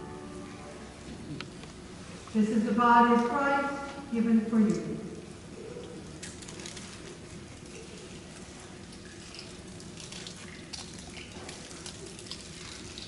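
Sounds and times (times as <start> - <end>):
small clicks and rustles: 5.8 - 13.0.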